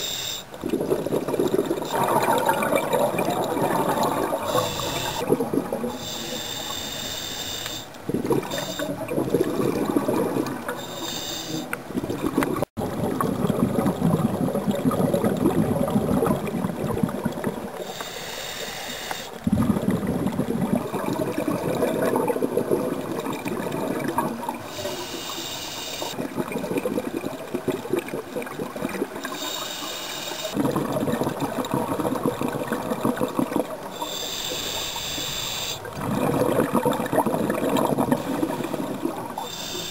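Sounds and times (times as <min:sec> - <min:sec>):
regulator inhale hiss: 0:00.0 - 0:00.5, 0:04.5 - 0:05.2, 0:06.0 - 0:08.0, 0:10.8 - 0:11.8, 0:17.8 - 0:19.4, 0:24.7 - 0:26.2, 0:29.3 - 0:30.6, 0:33.9 - 0:35.9, 0:38.3 - 0:39.9
exhaled bubbles gurgling: 0:00.0 - 0:07.0, 0:07.8 - 0:18.1, 0:19.3 - 0:39.9.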